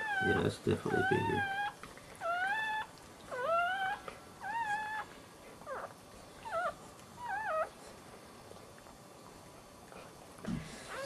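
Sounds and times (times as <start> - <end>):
puppies crying: 0.0 - 7.8.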